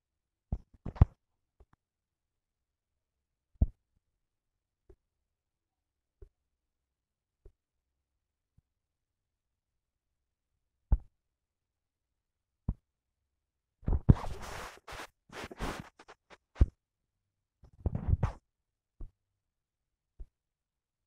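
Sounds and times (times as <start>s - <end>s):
scratchy rubbing: 14.0s - 16.7s.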